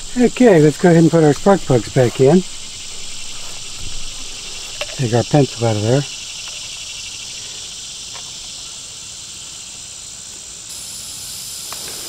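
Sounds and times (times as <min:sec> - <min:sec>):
high-pitched insect chorus: 0:00.0 - 0:12.0
faint click: 0:11.7 - 0:12.0.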